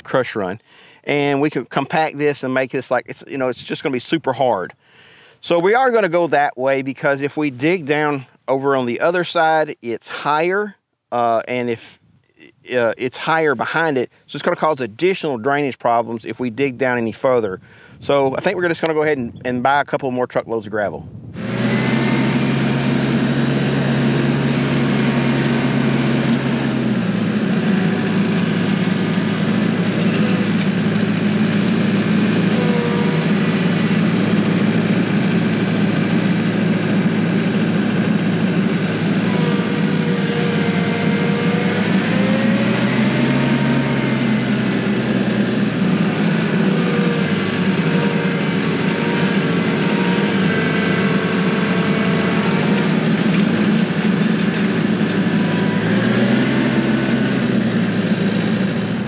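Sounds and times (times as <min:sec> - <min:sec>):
tractor diesel engine running: 0:00.0 - 0:04.8, 0:21.0 - 0:59.0
loader whine: 0:00.0 - 0:10.4, 0:21.0 - 0:59.0.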